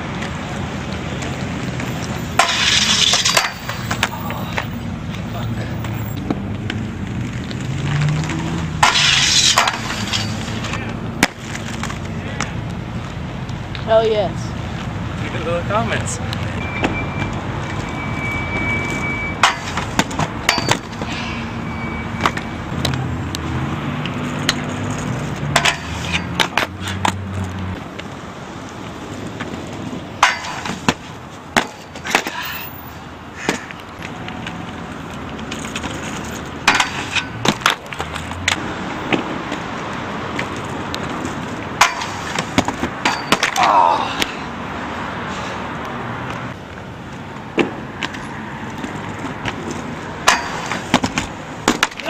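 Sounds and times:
skates clacking and knocking: 0:00.0 - 0:12.8, 0:19.4 - 0:21.2, 0:24.0 - 0:32.6, 0:33.4 - 0:44.4, 0:46.7 - 0:52.0
skates rolling over concrete: 0:00.0 - 0:14.0, 0:22.2 - 0:44.5, 0:46.2 - 0:52.0
skates grinding on metal rail: 0:01.1 - 0:04.7, 0:06.6 - 0:12.0, 0:18.8 - 0:21.6, 0:24.1 - 0:27.8, 0:29.0 - 0:43.8, 0:47.6 - 0:52.0.

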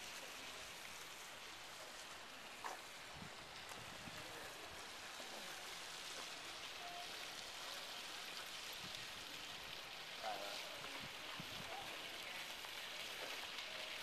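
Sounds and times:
fountain water splashing: 0:00.0 - 0:14.0
faint voices: 0:03.8 - 0:08.3, 0:09.2 - 0:14.0.

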